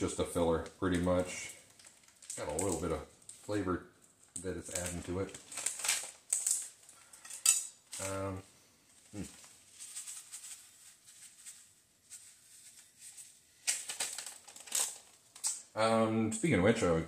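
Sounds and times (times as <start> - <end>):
crumbs pattering: 0.0 - 15.7
plastic bag crinkling: 0.2 - 15.7.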